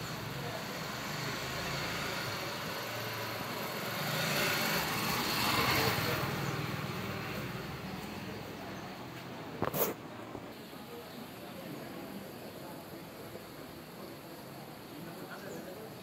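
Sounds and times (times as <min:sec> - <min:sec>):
outdoor traffic noise: 0:00.0 - 0:16.0.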